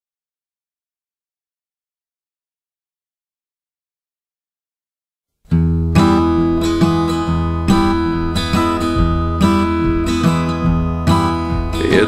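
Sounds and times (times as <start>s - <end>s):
acoustic guitar strumming: 5.5s - 12.0s.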